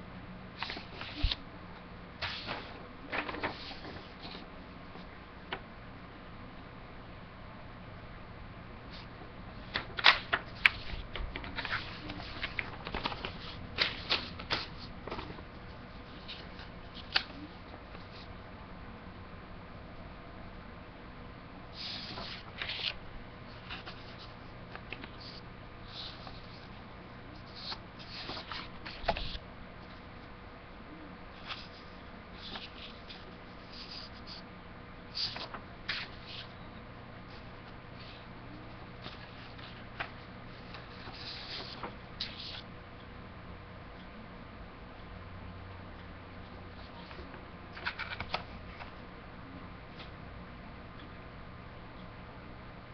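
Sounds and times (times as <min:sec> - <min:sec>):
low room hum: 0:00.0 - 0:52.9
paper rustling and crackling: 0:00.6 - 0:01.4, 0:02.2 - 0:04.5, 0:09.0 - 0:18.3, 0:21.8 - 0:26.8, 0:27.4 - 0:29.4, 0:31.4 - 0:34.4, 0:35.1 - 0:36.5, 0:39.0 - 0:42.6, 0:46.9 - 0:48.9.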